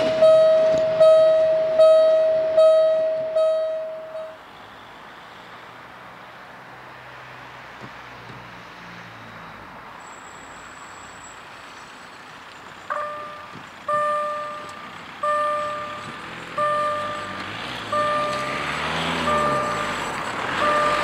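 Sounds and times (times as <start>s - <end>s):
level crossing warning bell: 0.0s - 4.4s, 12.9s - 21.0s.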